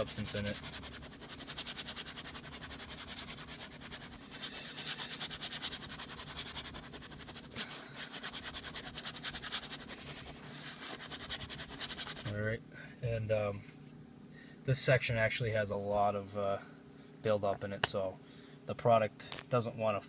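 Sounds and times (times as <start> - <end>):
brush scrubbing leather: 0.0 - 12.3.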